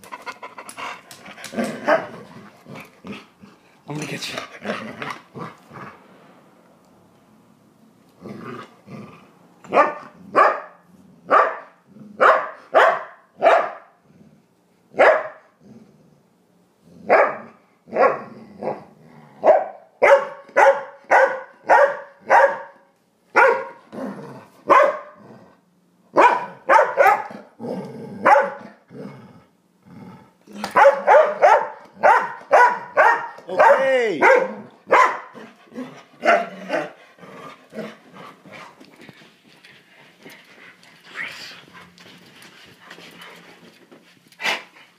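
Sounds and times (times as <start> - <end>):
dog barking in play: 1.5 - 2.2, 9.7 - 14.0, 15.0 - 15.5, 17.1 - 18.8, 19.4 - 23.9, 24.6 - 25.2, 26.1 - 27.4, 28.2 - 28.8, 30.5 - 35.5, 36.2 - 37.0.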